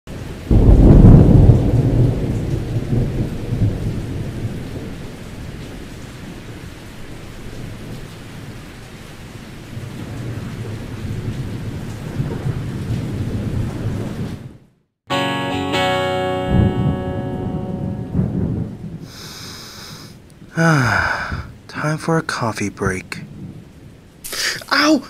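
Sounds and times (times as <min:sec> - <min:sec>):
steady rainfall: 0:00.1 - 0:14.6, 0:16.7 - 0:25.0
thunder rumbling: 0:00.5 - 0:08.0, 0:09.7 - 0:14.6, 0:16.5 - 0:21.7, 0:23.2 - 0:24.7.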